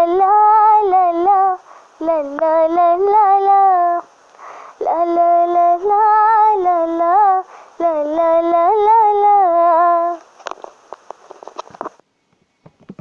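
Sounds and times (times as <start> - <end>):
small clicks and rustles: 10.2 - 13.0.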